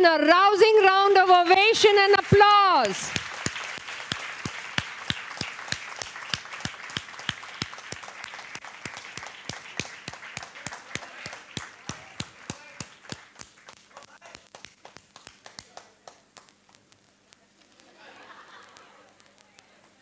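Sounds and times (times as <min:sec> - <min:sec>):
audience applauding: 0:00.8 - 0:16.6
sharp close claps: 0:02.0 - 0:17.1.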